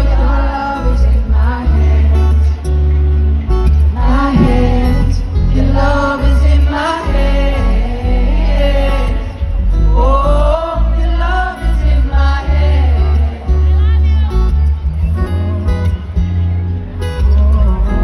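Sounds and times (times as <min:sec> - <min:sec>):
man singing: 0:00.0 - 0:02.8, 0:03.9 - 0:14.0, 0:17.2 - 0:18.0
acoustic guitar: 0:00.0 - 0:18.0.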